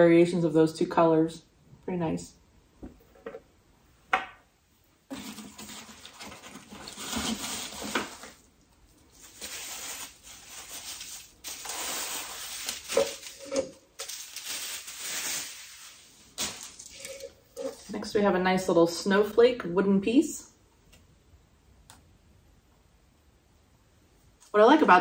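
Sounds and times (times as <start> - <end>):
wrapping rustling and crinkling: 5.1 - 18.1.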